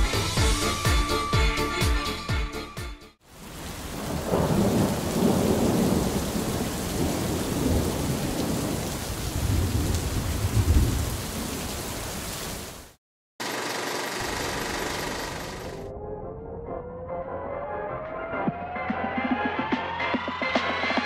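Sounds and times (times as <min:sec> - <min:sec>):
heavy rain hissing: 0:03.2 - 0:15.7
low rolling thunder: 0:03.5 - 0:11.8.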